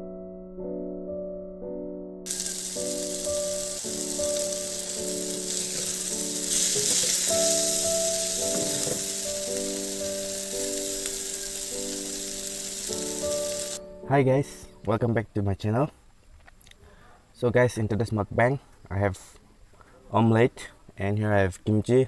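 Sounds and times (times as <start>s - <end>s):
soft piano music: 0.0s - 15.2s
food sizzling in a wok: 2.3s - 13.8s.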